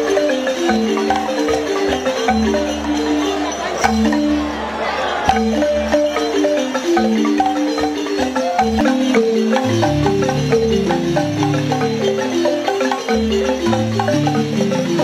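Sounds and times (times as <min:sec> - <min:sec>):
wooden xylophones playing: 0:00.0 - 0:15.0.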